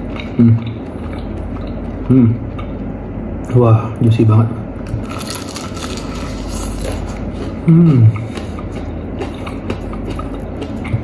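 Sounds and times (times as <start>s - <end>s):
person chewing crispy food: 0.0s - 3.0s, 4.8s - 11.0s
background hum: 0.0s - 11.0s
person humming: 7.6s - 8.3s.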